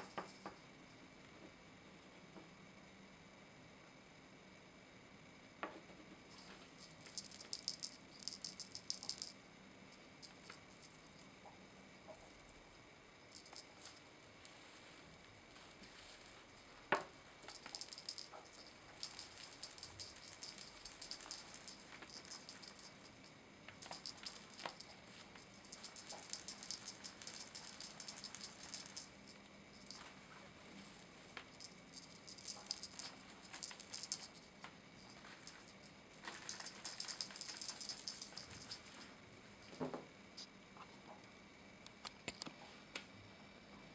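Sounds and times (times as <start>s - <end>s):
small bell jingling: 0.0s - 1.0s, 6.3s - 11.3s, 13.3s - 14.8s, 15.6s - 40.0s.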